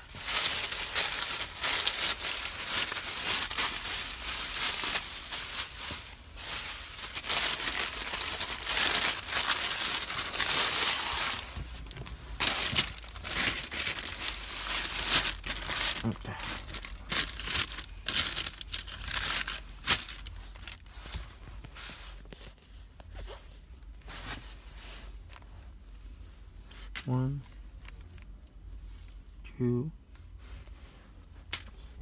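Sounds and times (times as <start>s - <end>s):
paper and plastic bag crinkling: 0.0s - 20.9s.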